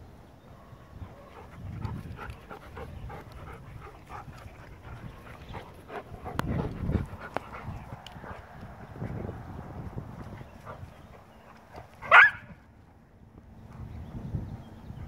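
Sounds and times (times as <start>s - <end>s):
dogs panting: 1.0s - 9.4s, 10.1s - 12.2s.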